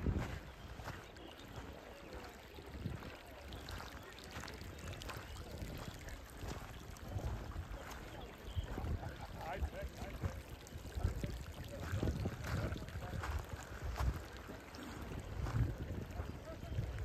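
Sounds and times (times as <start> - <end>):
wind on microphone: 0.0 - 1.1, 2.2 - 17.0
stream trickling over gravel: 0.0 - 17.0.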